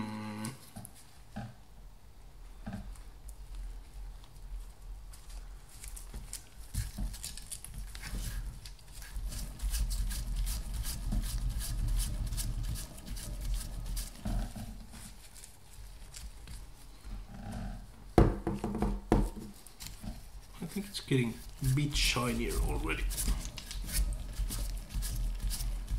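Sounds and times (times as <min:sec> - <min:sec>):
sandpaper rasping on metal: 0:09.2 - 0:14.4, 0:21.1 - 0:25.9.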